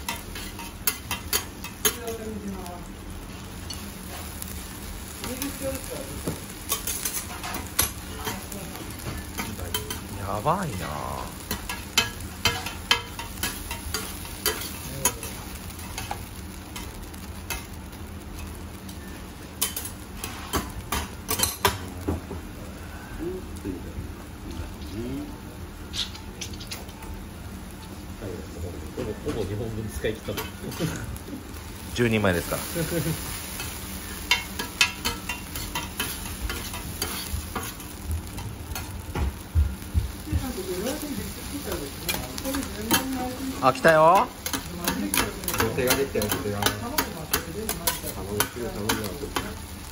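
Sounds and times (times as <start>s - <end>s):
noodles sizzling on a griddle: 0.0s - 49.9s
metal spatulas scraping griddle: 19.6s - 21.8s, 33.2s - 37.9s, 44.1s - 49.4s.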